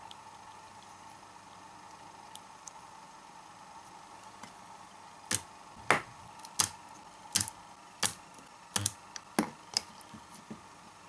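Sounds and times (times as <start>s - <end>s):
spot welder cracking: 6.5s - 8.2s, 8.8s - 9.0s.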